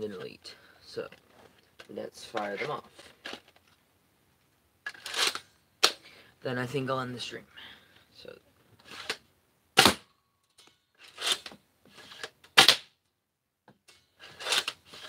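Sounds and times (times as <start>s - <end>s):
sharp crack of dart firing: 9.8s - 10.1s, 12.6s - 12.9s.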